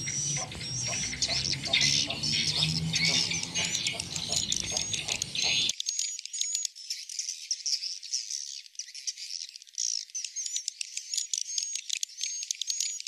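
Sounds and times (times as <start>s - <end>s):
swiftlets twittering: 0.0s - 5.7s.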